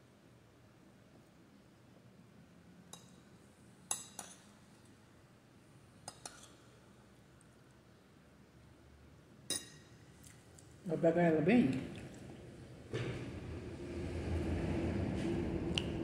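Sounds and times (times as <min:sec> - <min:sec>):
metal spoon clinking glass bowl: 0:03.9 - 0:04.5, 0:09.5 - 0:10.0.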